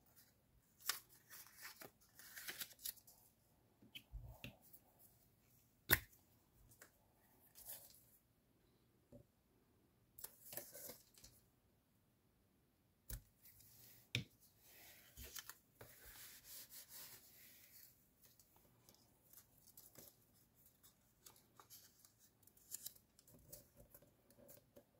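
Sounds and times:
paper rustling and crinkling: 0:00.2 - 0:03.1.

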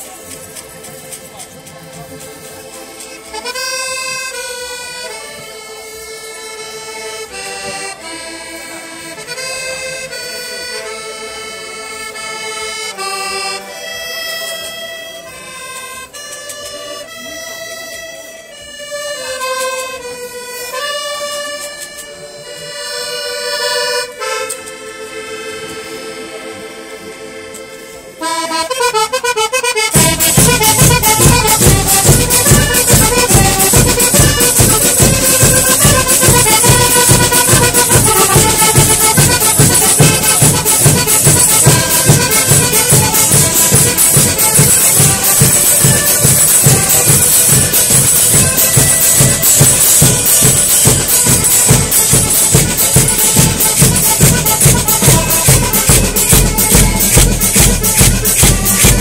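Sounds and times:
button accordions playing folk tune: 0:00.0 - 0:59.0
fast percussion beat: 0:28.4 - 0:59.0.

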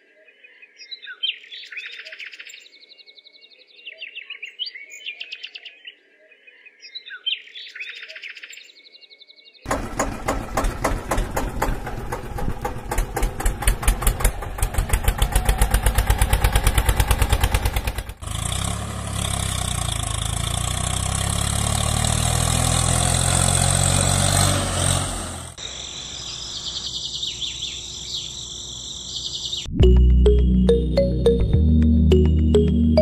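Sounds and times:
tractor engine chugging: 0:09.7 - 0:18.4.

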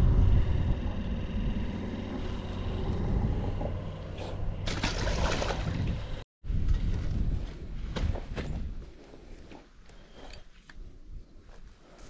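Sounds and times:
low rumbling handling noise: 0:00.0 - 0:08.6.

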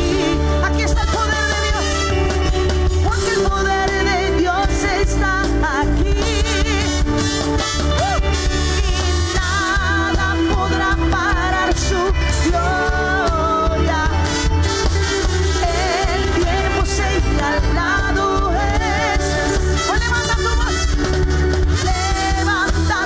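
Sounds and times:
drums: 0:00.0 - 0:23.0
electric guitars: 0:00.0 - 0:23.0
heavy bass: 0:00.0 - 0:23.0
keyboards: 0:00.0 - 0:23.0
singing with vibrato: 0:00.0 - 0:23.0.

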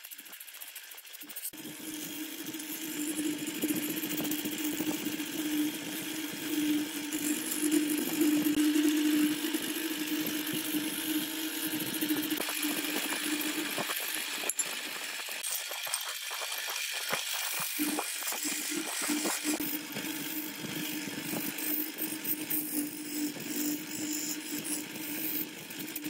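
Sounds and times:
wood lathe humming: 0:01.5 - 0:15.6, 0:17.2 - 0:26.0
turning tool scraping wood: 0:12.0 - 0:26.0.

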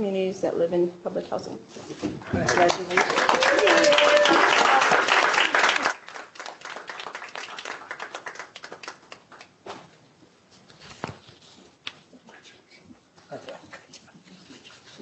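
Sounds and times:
hand claps: 0:02.4 - 0:09.6
papers shuffled on a table: 0:09.6 - 0:12.2.

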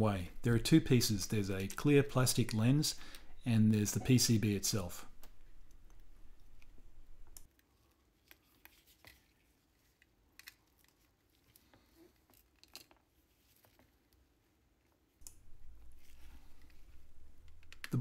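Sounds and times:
low hiss: 0:00.0 - 0:07.5, 0:15.2 - 0:18.0.

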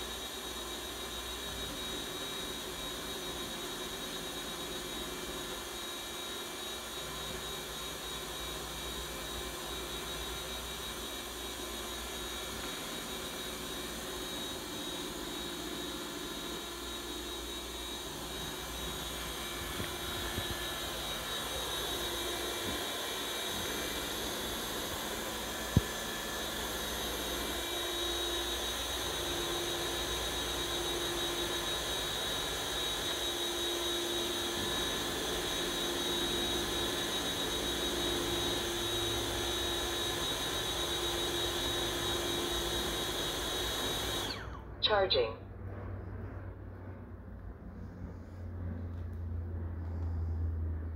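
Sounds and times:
robot vacuum motor whir: 0:00.0 - 0:44.6.

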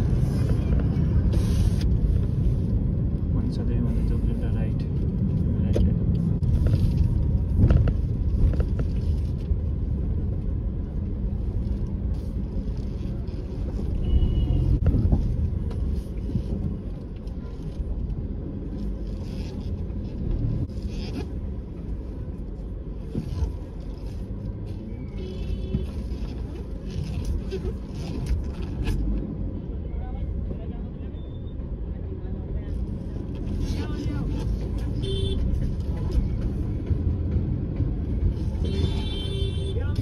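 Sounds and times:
car engine and road rumble: 0:00.0 - 0:40.0.

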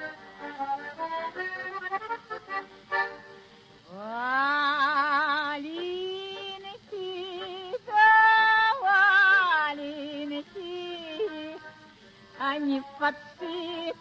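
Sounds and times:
woman singing folk song: 0:03.9 - 0:14.0.

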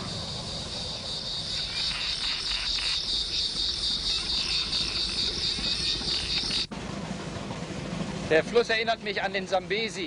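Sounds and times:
insects chirring: 0:00.0 - 0:06.7.

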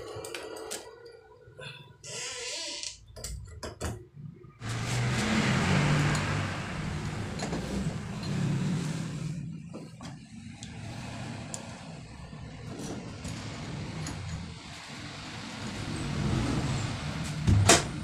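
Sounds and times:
vehicle engine passing: 0:04.6 - 0:18.0.

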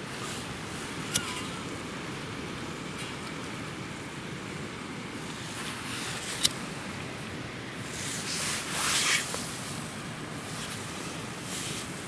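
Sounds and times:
wind: 0:00.0 - 0:12.0
rustling and scraping: 0:07.8 - 0:12.0.

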